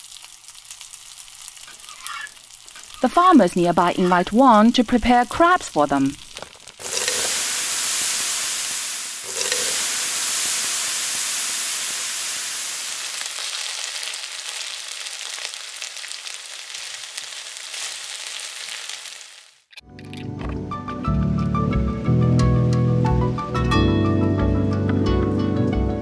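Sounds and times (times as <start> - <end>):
crabs sizzling in a wok: 0.0 - 19.7.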